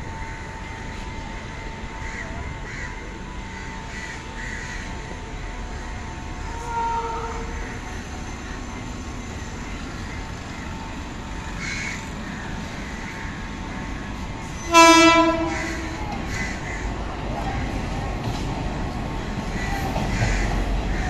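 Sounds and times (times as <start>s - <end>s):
low train rumble: 0.0s - 21.0s
train horn blast: 6.4s - 7.6s, 14.6s - 16.1s.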